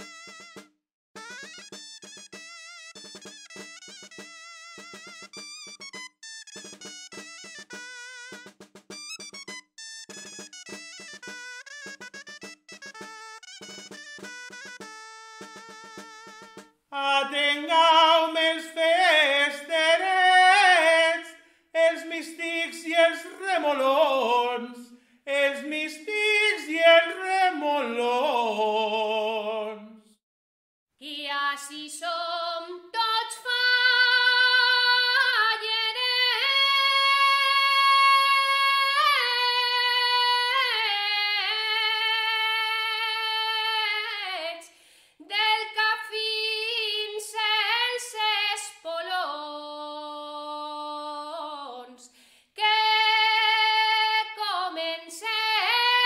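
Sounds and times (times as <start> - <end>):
man singing unaccompanied: 17.0 - 30.1.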